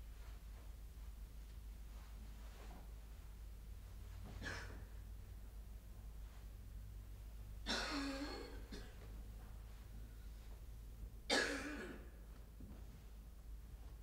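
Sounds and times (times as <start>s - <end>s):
man coughing: 11.3s - 12.1s.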